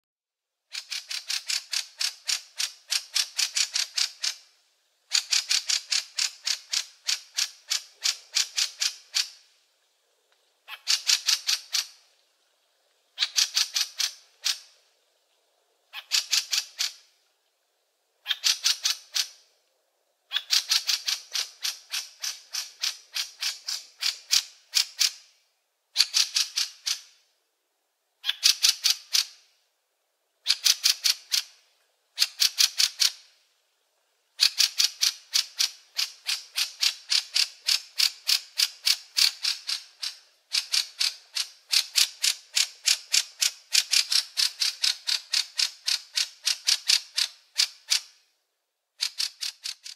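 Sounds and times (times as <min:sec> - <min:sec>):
bird rattling chatter: 0:49.0 - 0:49.9.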